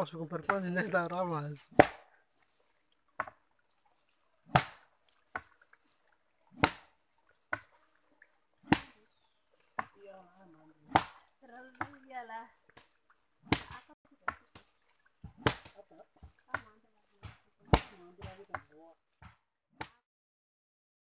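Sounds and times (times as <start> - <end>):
heavy chopping strikes on wood: 1.7 - 2.1, 4.5 - 4.8, 6.6 - 6.9, 8.7 - 8.9, 10.9 - 11.2, 13.5 - 14.5, 15.2 - 15.8, 17.2 - 18.6.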